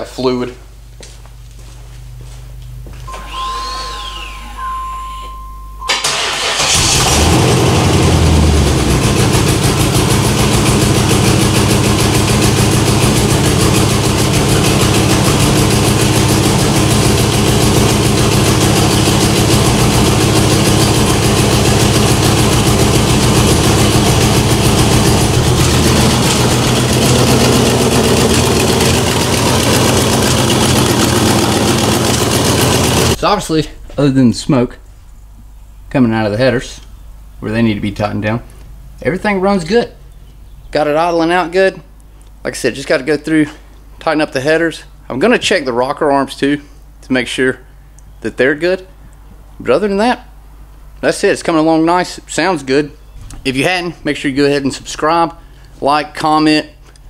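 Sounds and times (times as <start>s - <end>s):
car engine starting and idling: 3.1s - 33.2s.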